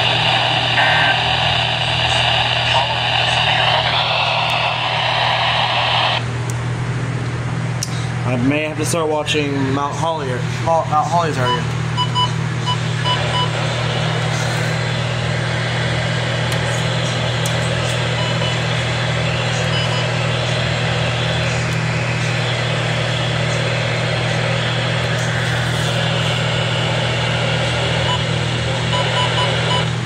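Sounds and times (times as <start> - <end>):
radio static: 0.0 - 6.3, 12.8 - 30.0
low hum: 0.0 - 8.8, 9.4 - 30.0.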